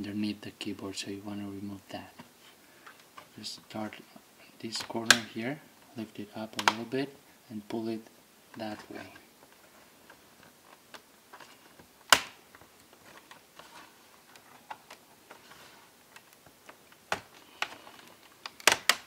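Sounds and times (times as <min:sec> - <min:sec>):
plastic clicks and snaps: 0:06.5 - 0:06.9, 0:08.8 - 0:13.6, 0:14.2 - 0:15.4, 0:16.1 - 0:19.0.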